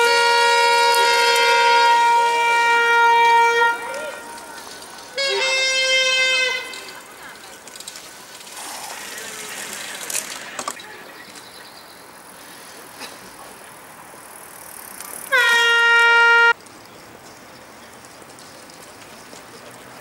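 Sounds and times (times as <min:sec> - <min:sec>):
horn blowing steady tone: 0:00.0 - 0:07.2, 0:15.3 - 0:16.6
faint street background: 0:00.0 - 0:20.0.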